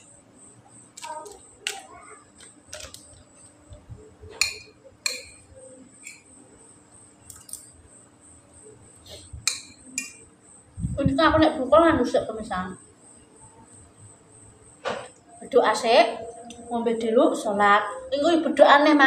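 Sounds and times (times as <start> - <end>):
cutlery clinking on a plate: 4.4 - 5.4.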